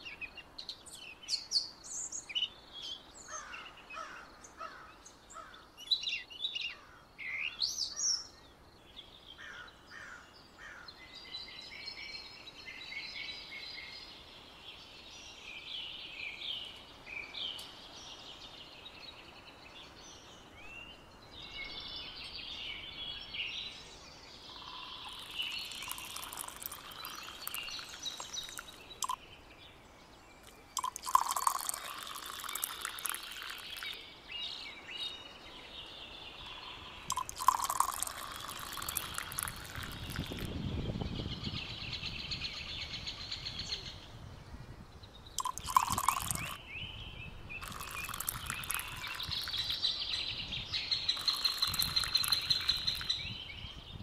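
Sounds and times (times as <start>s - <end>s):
small birds chirping: 0.0s - 54.0s
tea pouring into a glass cup: 25.0s - 29.2s, 30.4s - 34.0s, 37.1s - 40.5s, 45.4s - 46.6s, 47.6s - 49.9s, 51.1s - 53.2s.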